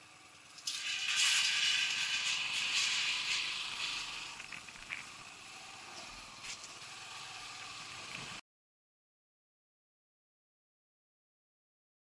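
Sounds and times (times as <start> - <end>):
motorcycle rolling slowly: 0.0 - 8.4
steady hiss: 0.0 - 8.4.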